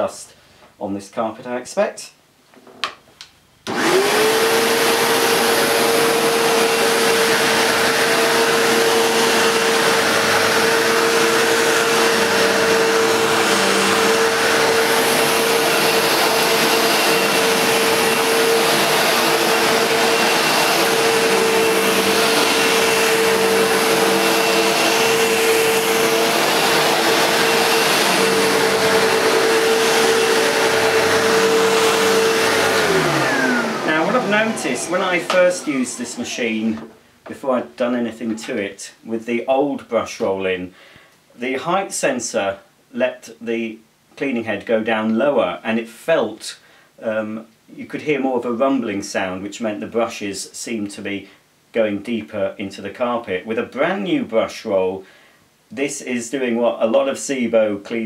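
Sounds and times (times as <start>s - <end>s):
vacuum cleaner motor whining: 3.7s - 37.0s.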